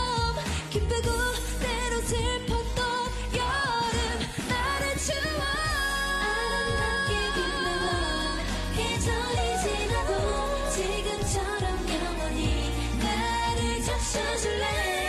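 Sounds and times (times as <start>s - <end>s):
dance-pop beat: 0.0s - 15.0s
female voices singing: 0.0s - 15.0s.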